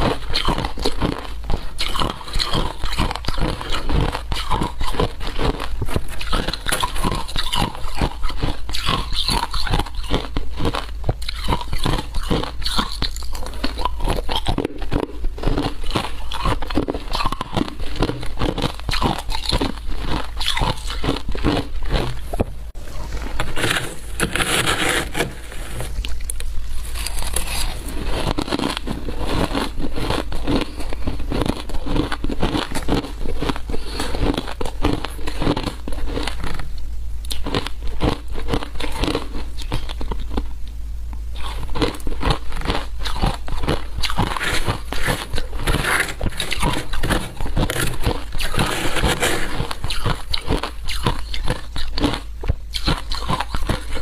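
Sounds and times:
ice being crunched and chewed: 0:00.0 - 0:22.4, 0:23.3 - 0:40.5, 0:41.4 - 0:54.0
metal spoon scraping ice: 0:23.4 - 0:25.9, 0:26.8 - 0:30.3, 0:44.1 - 0:50.7.

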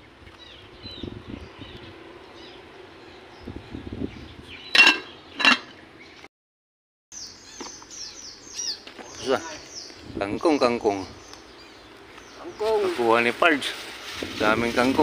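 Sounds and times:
metal lid clinking on pot: 0:04.7 - 0:05.7.

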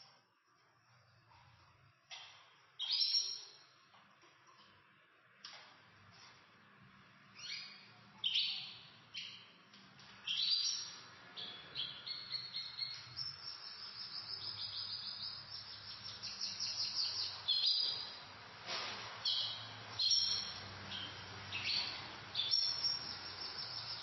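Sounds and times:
canaries chirping: 0:02.1 - 0:03.7, 0:07.2 - 0:18.4, 0:19.2 - 0:24.0
canary trilling: 0:02.8 - 0:03.6, 0:10.2 - 0:18.1, 0:19.2 - 0:24.0.

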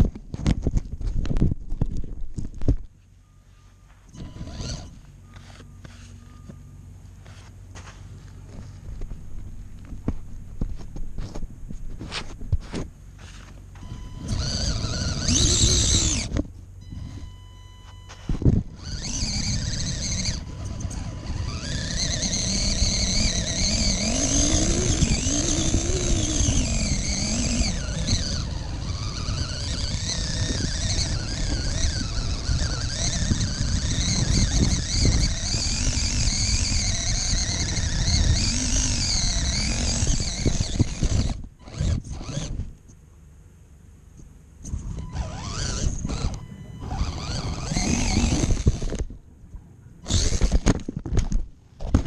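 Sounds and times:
toy car electric motor whining: 0:04.1 - 0:06.1, 0:13.2 - 0:17.3, 0:18.1 - 0:42.7, 0:44.6 - 0:49.1, 0:50.0 - 0:52.0.

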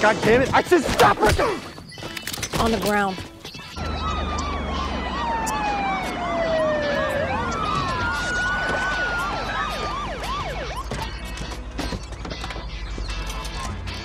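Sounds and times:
police siren yelping: 0:03.8 - 0:11.4
police sirens wailing: 0:03.8 - 0:11.6.

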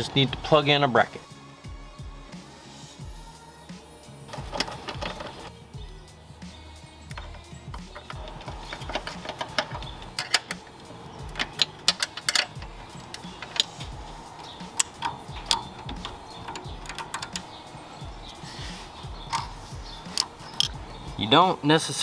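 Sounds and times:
background music: 0:00.0 - 0:22.0
hand tools clicking on bolts: 0:04.3 - 0:05.5, 0:07.1 - 0:21.0.

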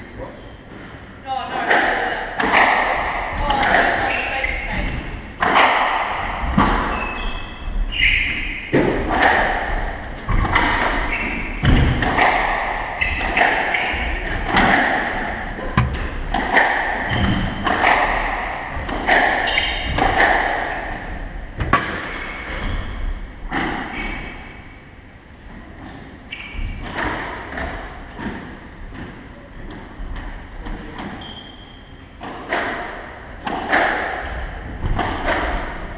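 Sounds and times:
squash ball hits echoing: 0:01.5 - 0:07.2, 0:07.9 - 0:24.6, 0:32.2 - 0:35.9.

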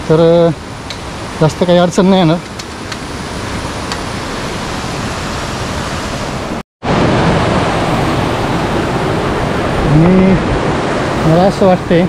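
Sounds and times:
fast-flowing stream rushing: 0:00.6 - 0:12.0.

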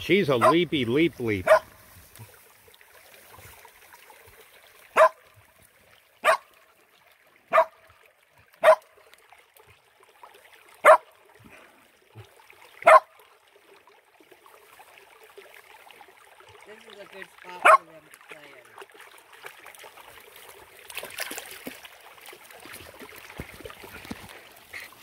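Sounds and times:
river water trickling: 0:00.0 - 0:25.0
dog barking: 0:00.4 - 0:00.6, 0:01.4 - 0:01.7, 0:05.0 - 0:05.2, 0:06.2 - 0:06.5, 0:07.5 - 0:07.8, 0:08.6 - 0:08.9, 0:10.8 - 0:11.1, 0:12.8 - 0:13.1, 0:17.6 - 0:17.9.

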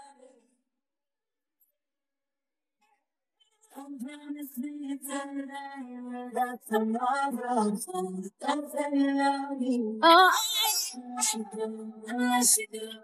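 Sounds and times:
woman singing with vibrato: 0:03.8 - 0:13.0.

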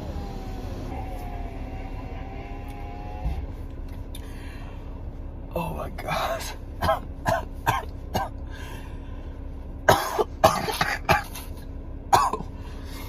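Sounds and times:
man coughing: 0:06.8 - 0:08.4, 0:09.9 - 0:12.6.

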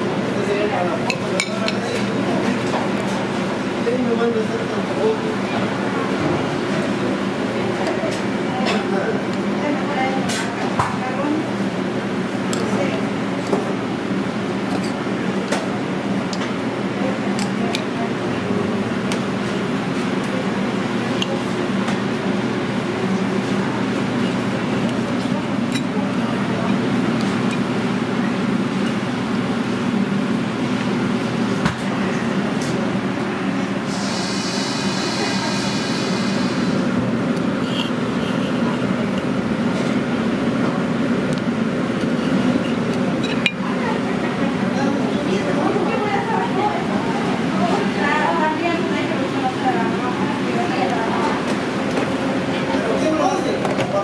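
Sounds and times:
kitchen equipment humming: 0:00.0 - 0:54.0
utensils clinking on dishes: 0:25.1 - 0:27.7, 0:42.2 - 0:43.6
indistinct background voices: 0:32.0 - 0:41.0.

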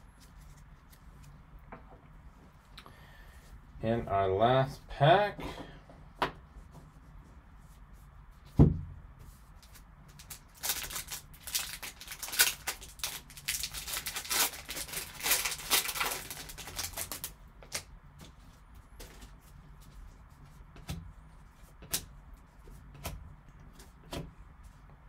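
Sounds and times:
thump: 0:08.5 - 0:08.9
foil wrapper tearing and crinkling: 0:10.1 - 0:17.9.

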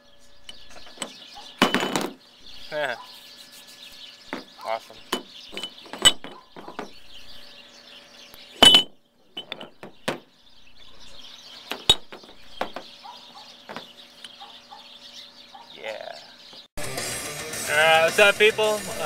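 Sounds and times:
brake pads clinking on metal: 0:04.4 - 0:07.0, 0:08.6 - 0:10.2.

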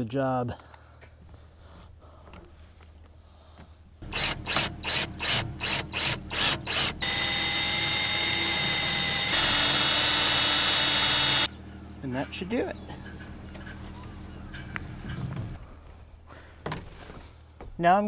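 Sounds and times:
cordless drill boring into metal: 0:04.0 - 0:11.5.

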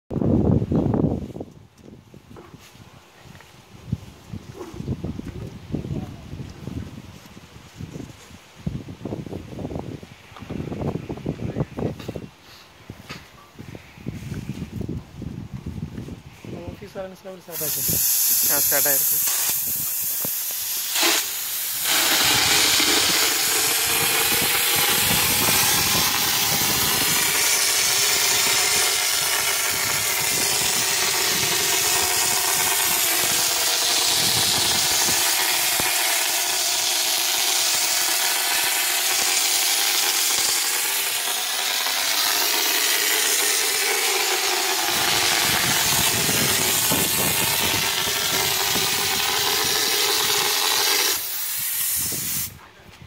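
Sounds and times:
texture spray gun hissing: 0:17.5 - 0:52.6.

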